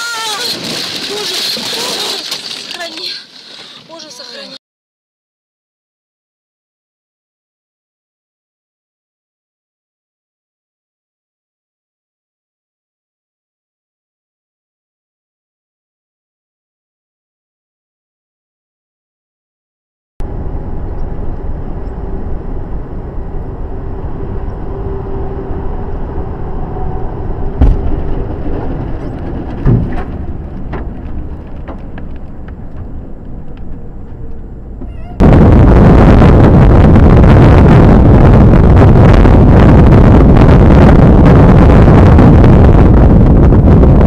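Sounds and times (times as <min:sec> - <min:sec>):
road noise: 0:00.0 - 0:04.6, 0:20.2 - 0:39.7
engine hum: 0:20.2 - 0:41.9
wind buffeting microphone: 0:20.2 - 0:44.0
loud debris impacts: 0:27.6 - 0:32.9.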